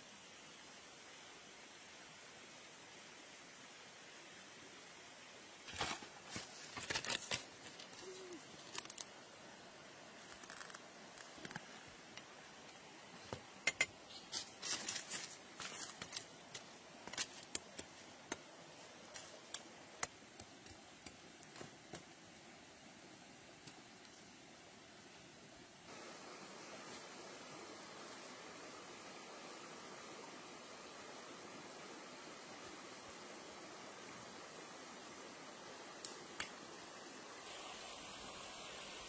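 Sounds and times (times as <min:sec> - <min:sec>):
dry sheaths crackling and tearing: 0:10.3 - 0:11.7.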